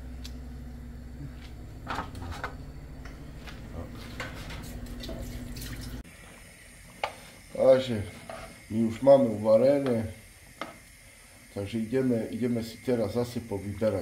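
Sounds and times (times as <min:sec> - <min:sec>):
low hum: 0:00.0 - 0:13.7.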